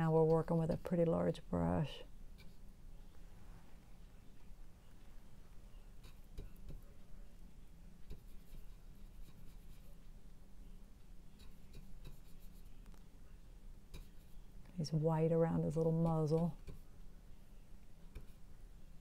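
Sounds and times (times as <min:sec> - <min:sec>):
steady low hum: 0:00.0 - 0:19.0
brush scratching on panel: 0:02.4 - 0:02.6, 0:06.0 - 0:07.0, 0:08.0 - 0:10.0, 0:11.3 - 0:12.8, 0:13.9 - 0:14.5.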